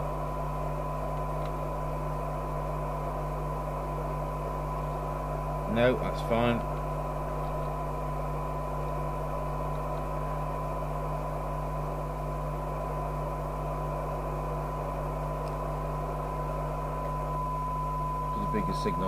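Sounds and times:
low mains hum: 0:00.0 - 0:19.0
radio hiss: 0:05.3 - 0:17.4, 0:18.2 - 0:19.0
radio test tone: 0:16.2 - 0:19.0.

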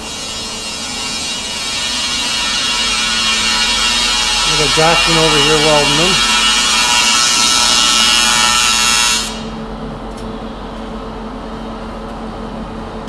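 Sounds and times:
welding arc crackling hiss: 0:00.0 - 0:09.6.

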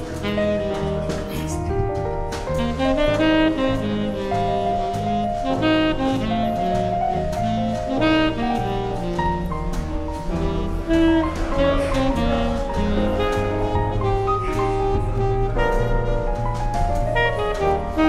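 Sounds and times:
bass line: 0:00.0 - 0:18.0
saxophone: 0:00.0 - 0:18.0.

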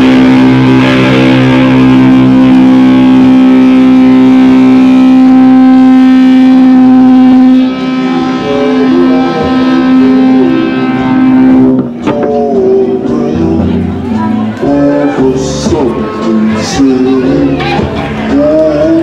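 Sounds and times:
distorted electric guitar note: 0:00.0 - 0:19.0.

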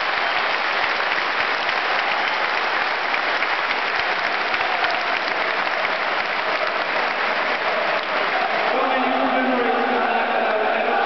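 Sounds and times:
close hand claps: 0:00.0 - 0:08.9
stadium crowd applauding: 0:00.0 - 0:11.0.

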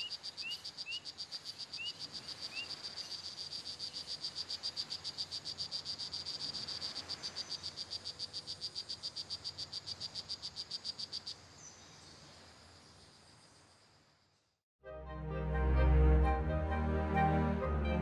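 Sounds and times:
frog calling: 0:00.0 - 0:11.4
faint forest background noise: 0:00.0 - 0:18.0.

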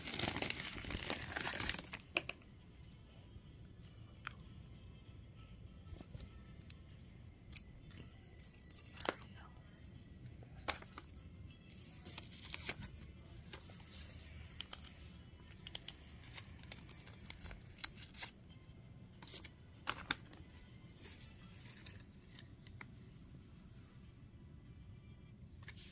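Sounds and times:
paper rustling and folding: 0:00.0 - 0:02.1, 0:10.6 - 0:18.4, 0:19.2 - 0:22.8.

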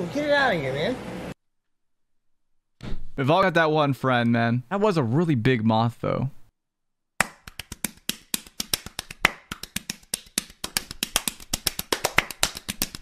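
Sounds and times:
hands slapping bare skin: 0:07.2 - 0:13.0.

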